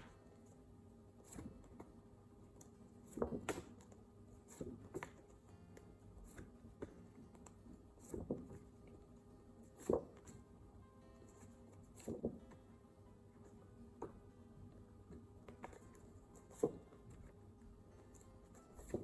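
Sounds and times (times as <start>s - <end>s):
flashcards being handled: 11.3s - 12.6s, 18.1s - 19.0s.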